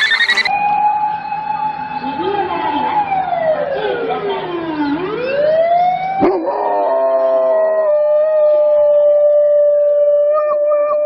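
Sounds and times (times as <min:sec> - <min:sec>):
dogs howling: 0:06.2 - 0:11.0.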